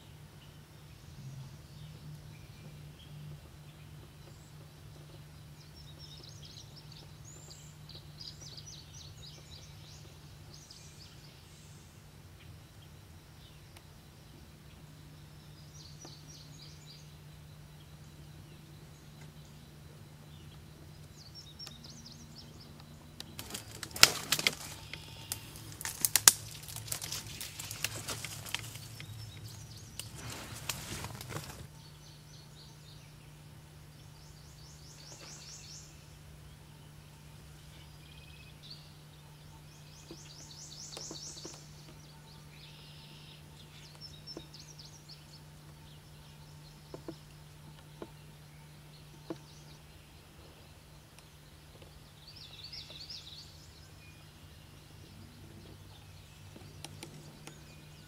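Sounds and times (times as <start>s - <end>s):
faint low hum: 0.0s - 58.0s
loud rustling with crackling clicks: 22.8s - 31.7s.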